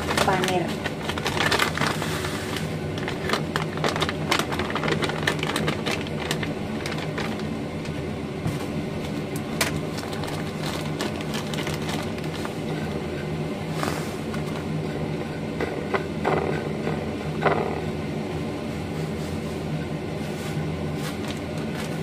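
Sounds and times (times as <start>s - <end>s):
plastic bag crinkling: 0.0s - 7.6s, 9.6s - 12.7s
low mechanical hum: 0.0s - 22.0s.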